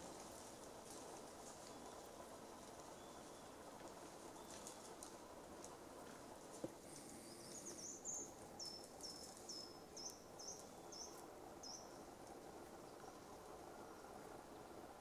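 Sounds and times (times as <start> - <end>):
outdoor hiss: 0.0 - 15.0
small bird calling: 6.9 - 12.0.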